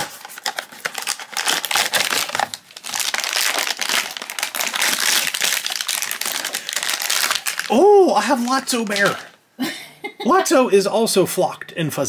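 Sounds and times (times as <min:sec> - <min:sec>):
foil bag crinkling: 0:00.0 - 0:09.4.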